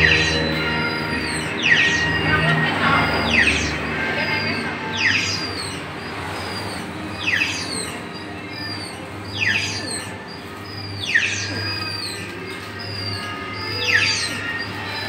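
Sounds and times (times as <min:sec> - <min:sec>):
electronic ride tune: 0:00.0 - 0:15.0.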